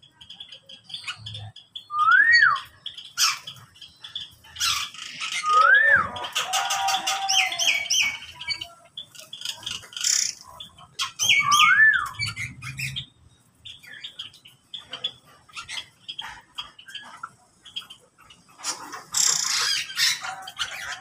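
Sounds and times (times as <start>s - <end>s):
songbirds falling whistles: 1.8s - 3.4s, 4.6s - 8.2s, 11.2s - 13.0s.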